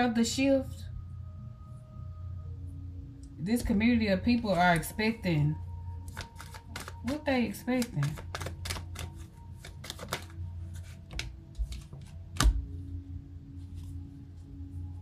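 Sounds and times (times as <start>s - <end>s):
low steady hum: 0.0s - 15.0s
cards being shuffled: 6.0s - 12.7s
card slapped onto table: 11.1s - 12.6s.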